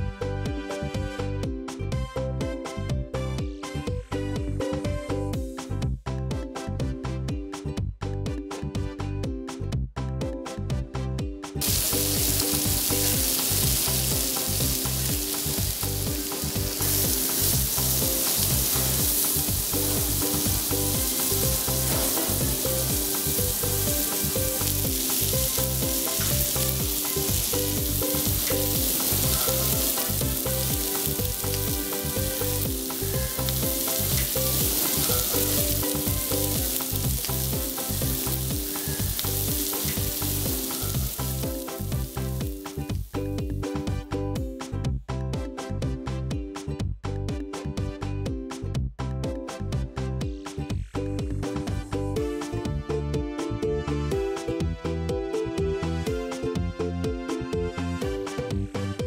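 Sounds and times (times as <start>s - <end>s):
music with steady beat: 0.0s - 59.0s
steaks sizzling on griddle: 11.6s - 43.2s.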